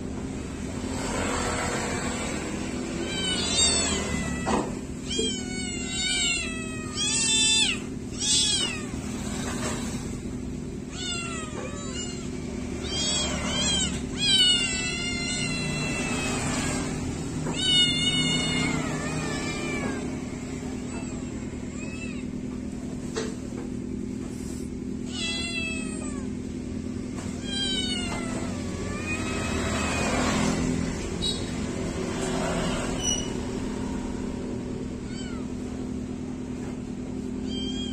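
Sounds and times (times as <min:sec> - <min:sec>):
kittens meowing: 0:02.7 - 0:22.6, 0:24.7 - 0:31.0, 0:34.8 - 0:36.0, 0:37.2 - 0:37.9.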